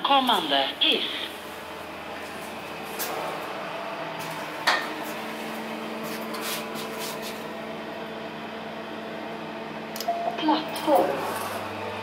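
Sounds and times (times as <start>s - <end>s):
elevator hum: 0.0s - 12.0s
low steady tone: 10.0s - 11.2s.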